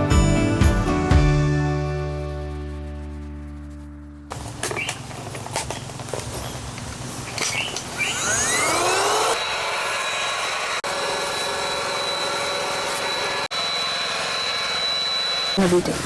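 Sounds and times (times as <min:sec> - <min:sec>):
air mattress pump motor whine: 0:07.4 - 0:16.0.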